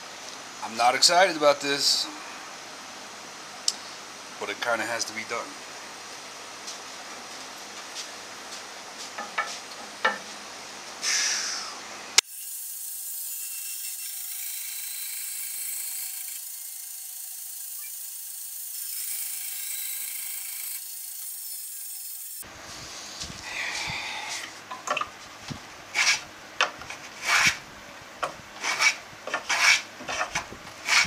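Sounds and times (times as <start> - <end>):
bandsaw cutting wood: 12.2 - 22.4, 28.6 - 31.0.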